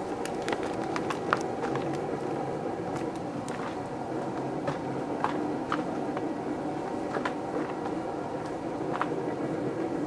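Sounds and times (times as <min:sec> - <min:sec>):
sharp ticks and crackles: 0:00.0 - 0:02.3
microwave oven humming: 0:00.0 - 0:10.0.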